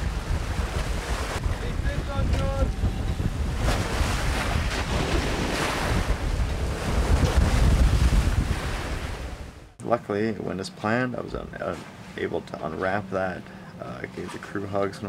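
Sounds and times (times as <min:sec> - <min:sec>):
wind rumble on microphone: 0:00.0 - 0:09.7
waves splashing against boat: 0:00.0 - 0:09.8, 0:10.8 - 0:15.0.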